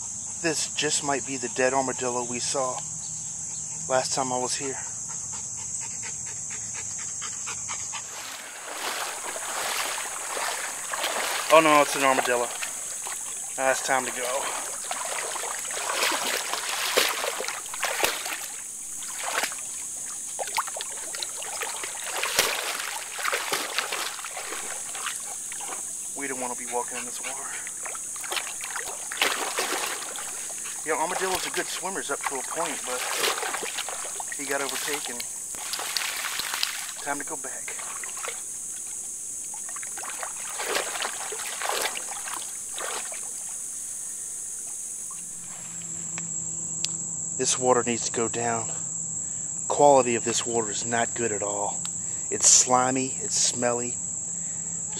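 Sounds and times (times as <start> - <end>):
insects droning: 0.0 - 54.9
water splashing and sloshing: 7.9 - 45.8
steady high hiss: 8.0 - 46.3.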